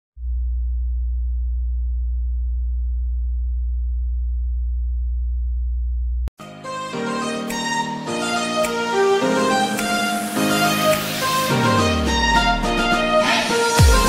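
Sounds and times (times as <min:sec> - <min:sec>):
low electronic bass tone: 0:00.2 - 0:06.3
music: 0:06.4 - 0:14.0.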